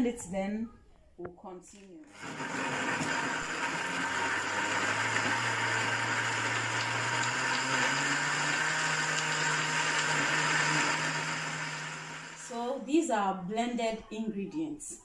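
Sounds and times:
blender motor running: 2.1 - 12.6.

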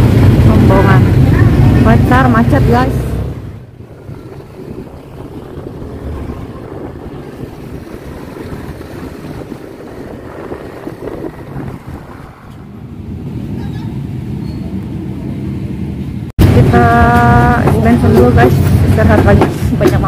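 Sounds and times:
motorcycle engine: 0.0 - 13.6
road noise: 0.0 - 20.0
wind buffeting microphone: 0.0 - 20.0.

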